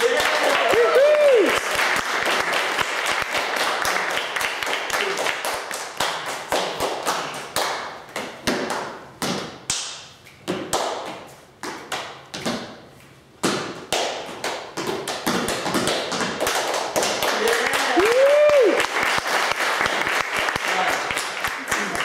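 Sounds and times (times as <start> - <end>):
hand claps: 0.0 - 8.9, 13.9 - 22.0.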